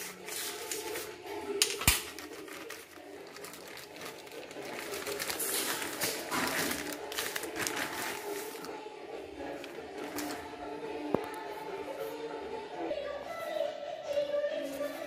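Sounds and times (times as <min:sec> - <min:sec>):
plastic wrapping crinkling: 0:00.0 - 0:10.6.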